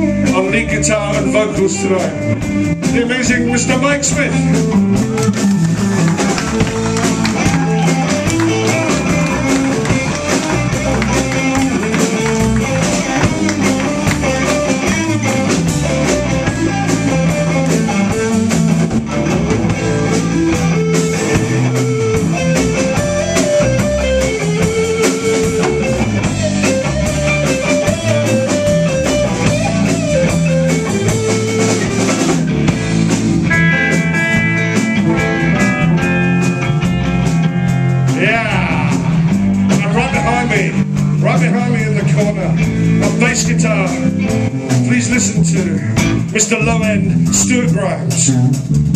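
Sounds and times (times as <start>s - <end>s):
bass guitar: 0.0s - 48.9s
drum kit: 0.0s - 48.9s
electric guitar: 0.0s - 48.9s.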